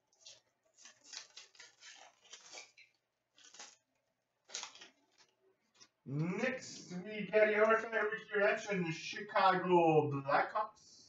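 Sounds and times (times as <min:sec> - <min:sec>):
trading cards rustling and flicking: 0:00.0 - 0:06.0.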